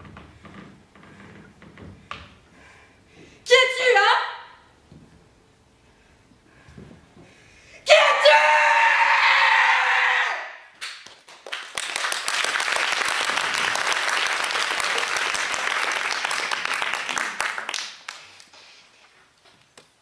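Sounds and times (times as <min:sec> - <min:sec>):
audience applause: 0:11.1 - 0:18.5.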